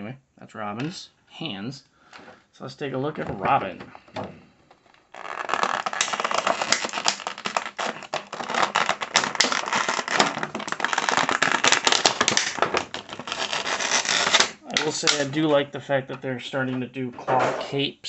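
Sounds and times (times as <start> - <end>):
plastic blister tray crackling: 3.1 - 15.6.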